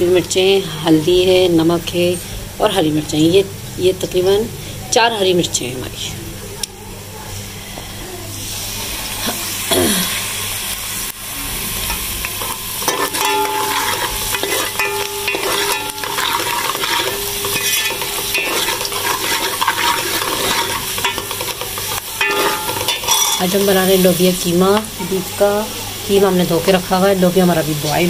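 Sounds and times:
onions sizzling in hot oil: 8.4s - 28.0s
spoon scraping metal pot: 11.9s - 23.7s.

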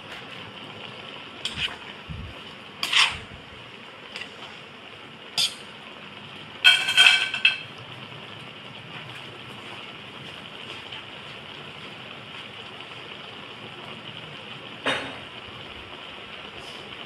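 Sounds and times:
steady hiss: 0.0s - 17.0s
metal tongs scraping a wok: 1.4s - 1.9s, 2.8s - 3.3s, 5.4s - 5.7s, 6.7s - 7.7s
ringing metallic clatter: 6.7s - 7.7s.

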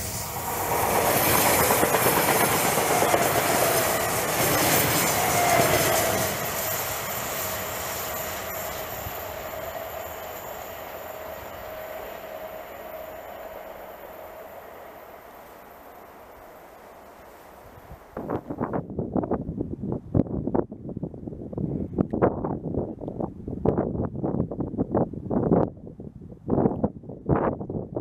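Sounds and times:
electric train passing: 0.0s - 18.8s.

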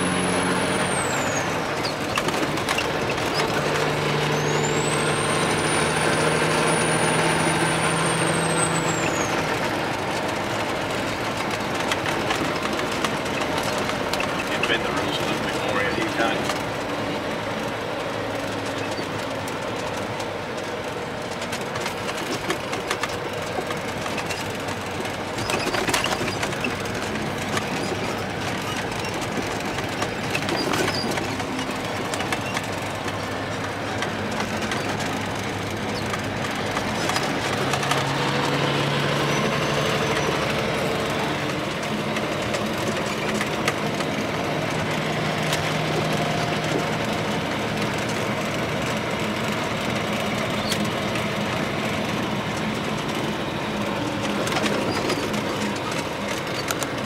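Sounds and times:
truck engine and road noise: 0.0s - 57.0s
sharp rattles: 21.2s - 57.0s.

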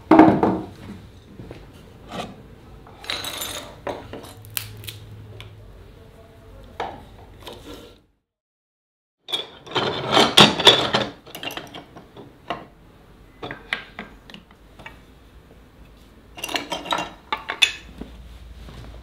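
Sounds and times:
tools clattering on workbench: 3.0s - 4.4s, 9.3s - 12.7s, 16.4s - 17.9s.

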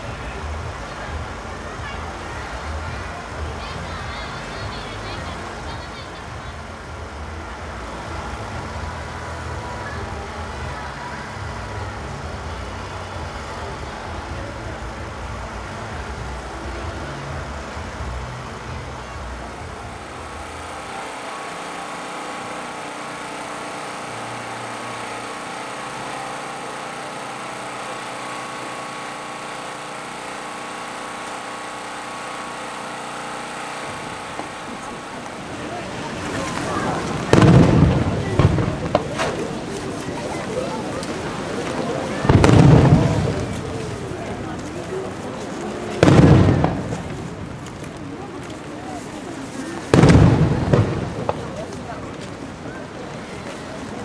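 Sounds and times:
mechanical engine-like hum: 0.0s - 48.7s
crowd din at food stalls: 0.0s - 54.0s
heavy low rumble: 33.9s - 48.7s.

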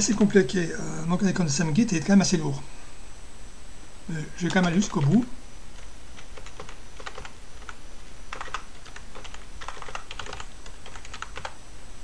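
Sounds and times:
typing on computer keyboard: 5.8s - 11.6s.

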